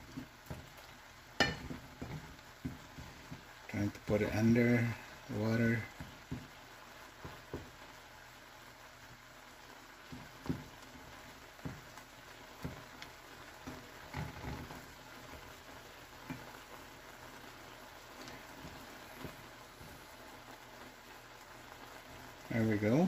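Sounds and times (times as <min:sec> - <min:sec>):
food simmering in a frying pan: 0:00.0 - 0:23.0
wooden spatula knocking on pan: 0:00.1 - 0:00.8, 0:01.4 - 0:04.6, 0:05.9 - 0:06.6, 0:07.2 - 0:07.8, 0:10.0 - 0:11.0, 0:11.6 - 0:12.9.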